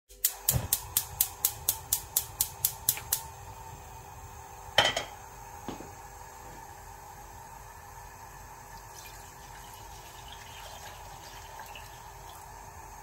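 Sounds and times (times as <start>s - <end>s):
gas hob igniter clicking: 0.1s - 3.4s.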